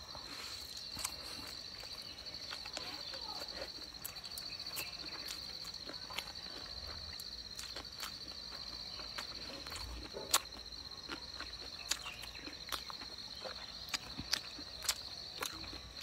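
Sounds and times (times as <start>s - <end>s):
wet chewing clicks: 0.3s - 16.0s.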